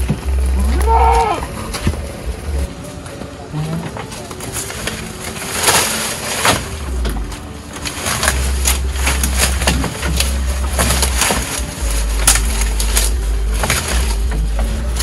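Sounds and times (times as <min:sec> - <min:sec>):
leafy branches rustling: 0:00.0 - 0:15.0
low rumble: 0:00.0 - 0:15.0.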